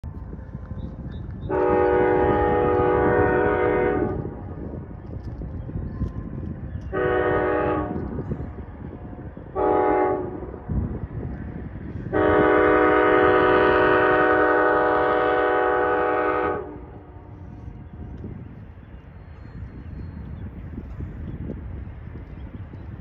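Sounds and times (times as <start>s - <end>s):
train air horn blasts: 1.5s - 4.5s, 6.9s - 10.8s, 12.0s - 18.2s.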